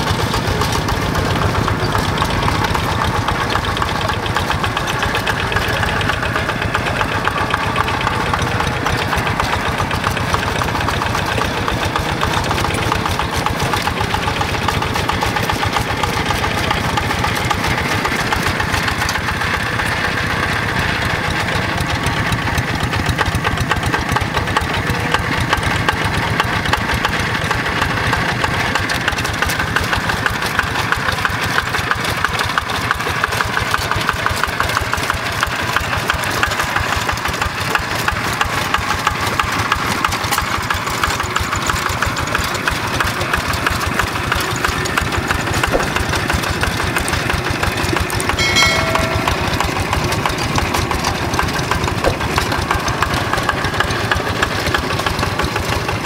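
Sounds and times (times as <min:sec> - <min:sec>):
diesel engine running under load: 0:00.0 - 0:56.0
wheels churning through water: 0:00.0 - 0:56.0.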